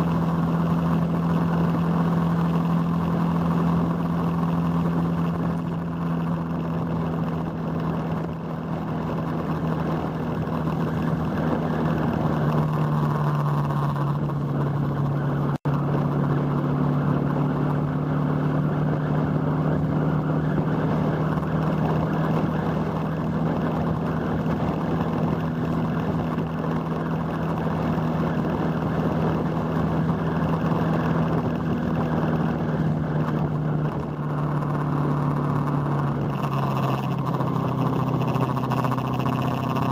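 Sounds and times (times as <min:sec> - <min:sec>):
motorcycle engine cruising: 0:00.0 - 0:39.9
wind rushing over microphone: 0:00.0 - 0:39.9.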